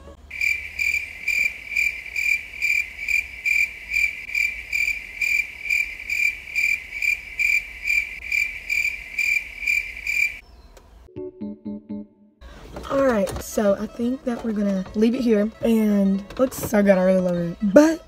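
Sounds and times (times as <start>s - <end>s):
crickets chirping: 0.3s - 10.4s.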